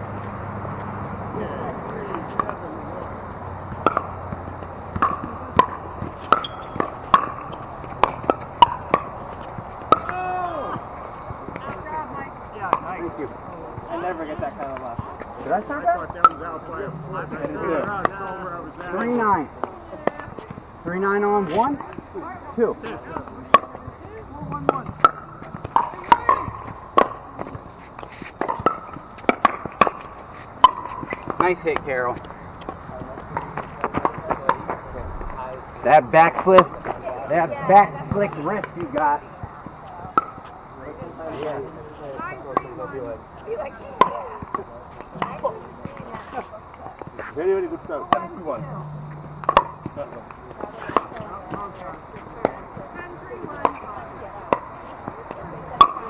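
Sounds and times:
ball popping off paddles: 0:03.6 - 0:11.8, 0:16.0 - 0:18.2, 0:23.1 - 0:34.8, 0:36.2 - 0:40.5, 0:44.0 - 0:47.3, 0:48.1 - 0:52.8, 0:53.4 - 0:56.0
ball bouncing on hard court: 0:03.6 - 0:13.0, 0:23.1 - 0:34.8, 0:36.4 - 0:40.5, 0:48.0 - 0:56.0.

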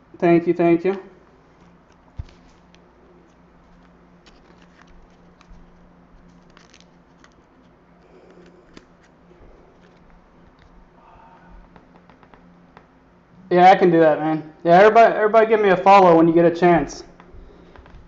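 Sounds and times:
low steady hum: 0:00.0 - 0:18.0
light clicks and handling noises: 0:00.8 - 0:12.9.

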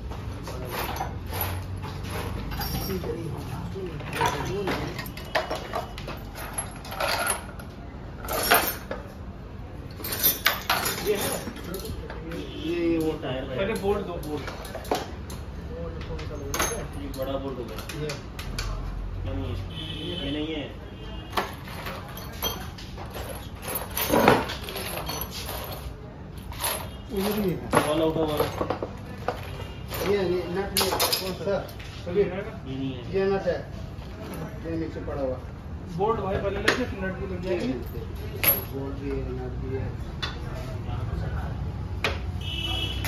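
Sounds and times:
bolts and tools clattering: 0:00.0 - 0:09.2, 0:09.9 - 0:12.2, 0:13.0 - 0:18.8, 0:21.3 - 0:31.9, 0:36.6 - 0:38.8.

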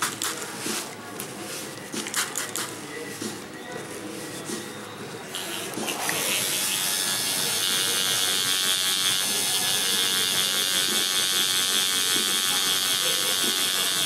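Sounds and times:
tattoo machine buzzing: 0:05.3 - 0:14.0.

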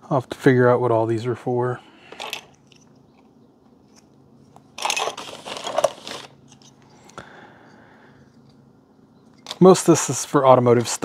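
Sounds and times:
plastic packaging crinkling: 0:04.7 - 0:06.8.

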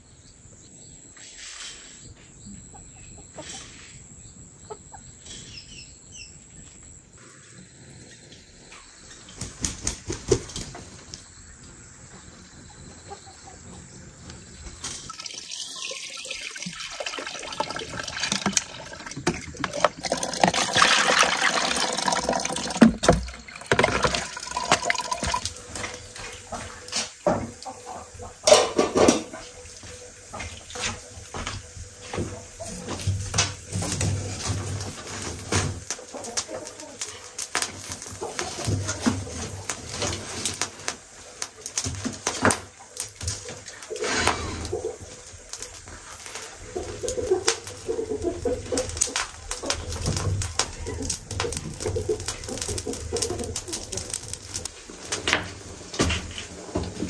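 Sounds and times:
insects trilling: 0:00.0 - 0:57.0
water poured and splashing: 0:14.9 - 0:27.2, 0:32.7 - 0:55.6.

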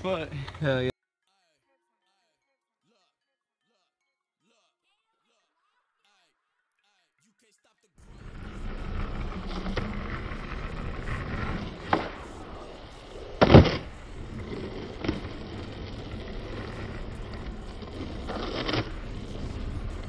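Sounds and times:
skateboard wheels rolling on asphalt: 0:08.0 - 0:20.0
skateboard click: 0:08.2 - 0:20.0
skateboard landing clack: 0:08.3 - 0:20.0.

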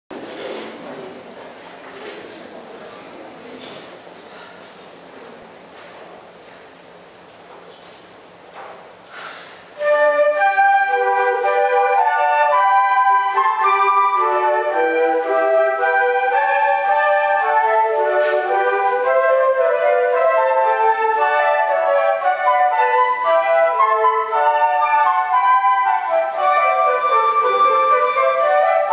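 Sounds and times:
flute ensemble playing: 0:09.8 - 0:28.9.

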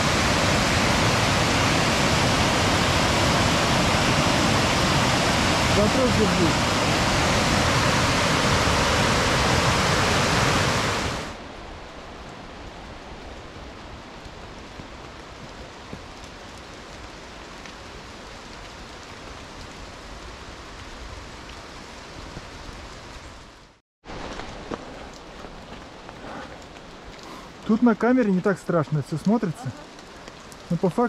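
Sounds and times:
river water rushing: 0:00.0 - 0:11.4.

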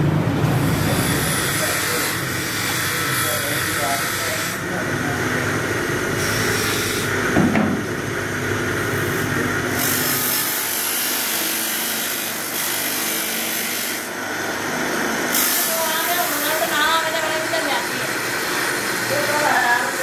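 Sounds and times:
metal rubbing on polishing wheel: 0:00.7 - 0:04.7.

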